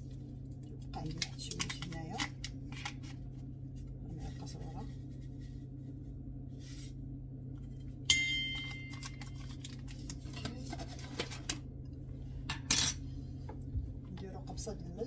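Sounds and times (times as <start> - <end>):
steady low hum: 0.0 - 15.0
metal spoon tapping ringing bowl: 8.1 - 9.1
kitchen things rustling: 8.6 - 11.6.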